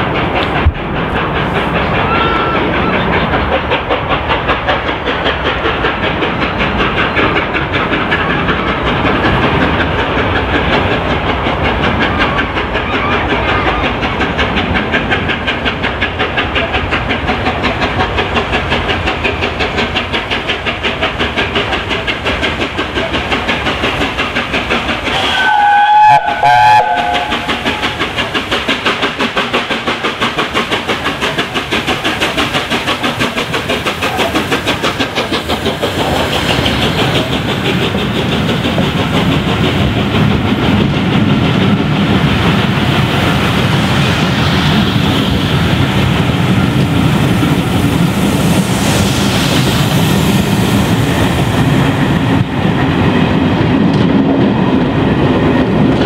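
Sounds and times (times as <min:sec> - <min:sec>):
coaches wheel rumble: 0:00.0 - 0:44.0
steam locomotive running: 0:00.0 - 0:56.0
steam whistle blasts: 0:25.1 - 0:28.0.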